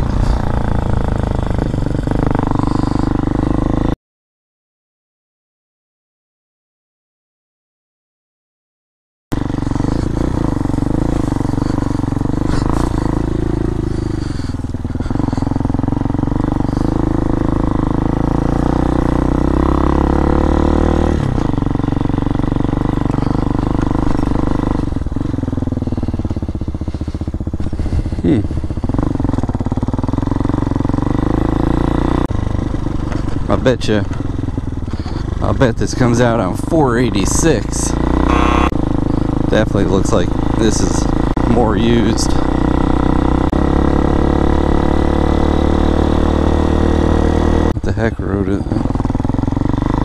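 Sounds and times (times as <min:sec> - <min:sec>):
motorcycle engine running: 0:00.0 - 0:04.0, 0:09.3 - 0:50.0.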